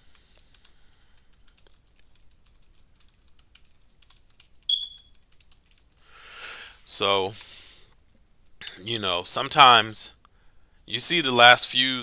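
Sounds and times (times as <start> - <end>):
keyboard typing clicks: 0.3 - 5.9.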